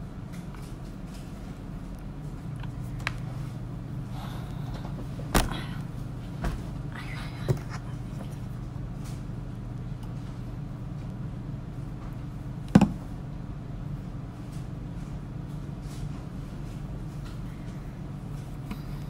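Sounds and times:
low room hum: 0.0 - 19.0
knocks and rustles at a desk: 12.8 - 13.0.

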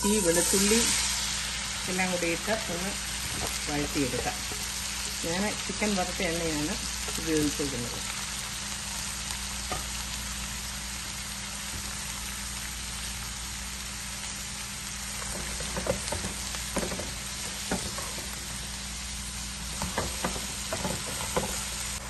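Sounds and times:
onions sizzling in hot oil: 0.0 - 22.0
spatula scraping and knocking pan: 3.2 - 4.8, 15.2 - 18.6, 19.6 - 22.0.

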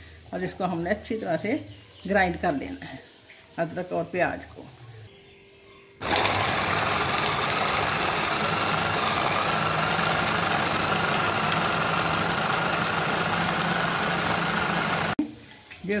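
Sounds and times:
electric food chopper running: 6.0 - 15.2.

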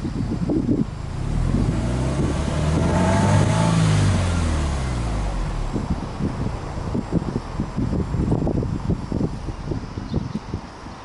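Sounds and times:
car engine revving: 0.8 - 9.1.

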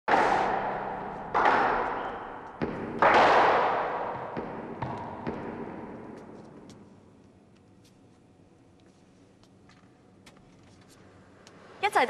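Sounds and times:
squash ball thumps echoing: 0.1 - 7.0.

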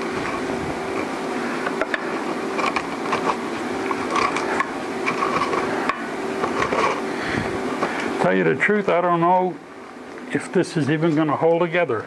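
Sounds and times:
grinder disc scrapes and clicks: 0.0 - 7.1
angle grinder on metal: 0.0 - 8.0.

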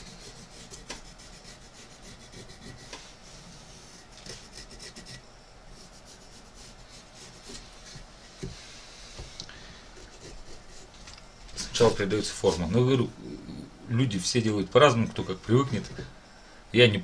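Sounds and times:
pencil scratching on wood: 0.0 - 3.1, 3.8 - 5.2, 5.8 - 8.5, 9.9 - 11.0.

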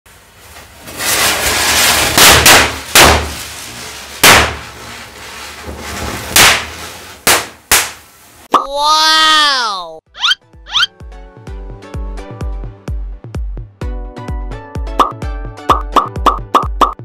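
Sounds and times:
fizzing hiss of burning fuses: 0.1 - 8.5
firecracker bangs: 1.1 - 8.2.

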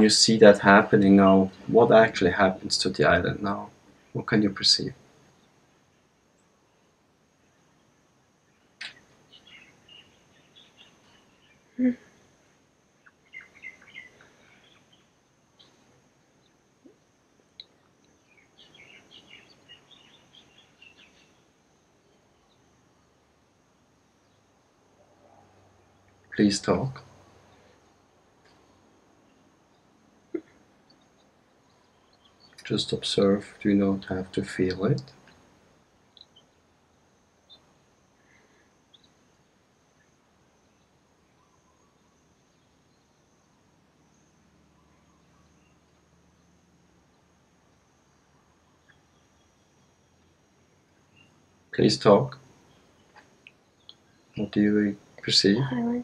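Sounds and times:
faint bird chirping: 0.0 - 56.0
faint high tone: 11.8 - 12.1.

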